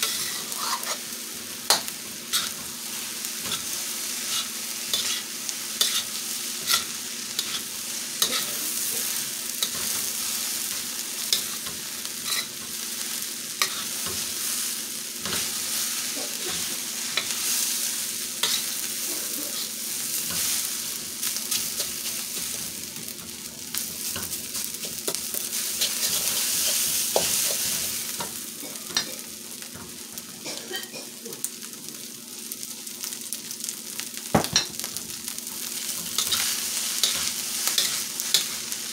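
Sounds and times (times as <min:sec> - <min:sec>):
metal spatula scraping a wok: 0:00.0 - 0:01.1, 0:01.7 - 0:02.7, 0:03.4 - 0:05.2, 0:05.8 - 0:08.6, 0:09.6 - 0:12.6, 0:13.6 - 0:14.2, 0:18.4 - 0:18.8, 0:23.8 - 0:28.0, 0:35.8 - 0:38.6
food sizzling in a wok: 0:00.0 - 0:38.9.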